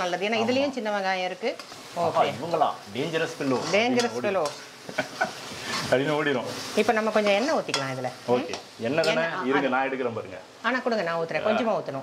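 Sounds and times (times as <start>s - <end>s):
spices sizzling: 0.0s - 12.0s
metal spatula scraping and stirring: 3.4s - 9.2s.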